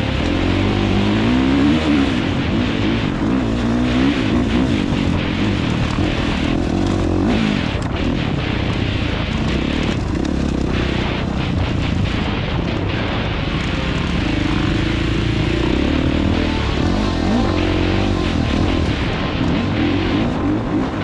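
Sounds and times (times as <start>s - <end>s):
dirt bike engine revving: 0.0s - 8.5s, 9.2s - 21.0s
wind rushing: 11.3s - 21.0s.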